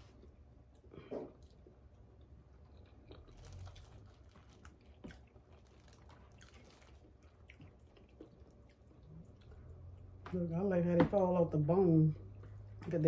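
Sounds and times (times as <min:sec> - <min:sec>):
faint chewing: 0:00.0 - 0:10.4
low steady hum: 0:00.0 - 0:13.0.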